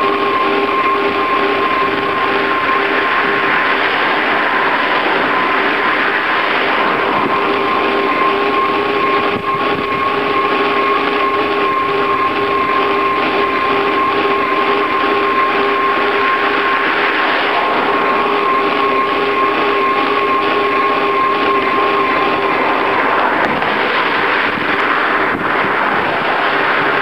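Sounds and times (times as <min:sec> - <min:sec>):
constant whine: 0:00.0 - 0:27.0
rushing wind: 0:00.0 - 0:27.0.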